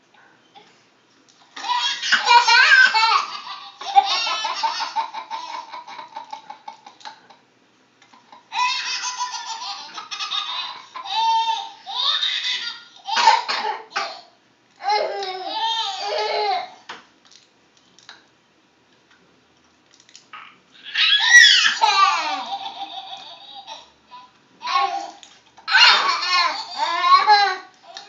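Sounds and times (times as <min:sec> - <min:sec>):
young child laughing: 0:01.6 - 0:07.3, 0:20.8 - 0:28.0.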